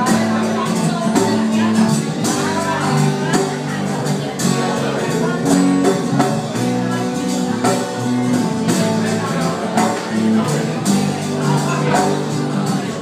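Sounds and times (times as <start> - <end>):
hand percussion beat: 0.0 - 13.0
strummed acoustic guitar: 0.0 - 13.0.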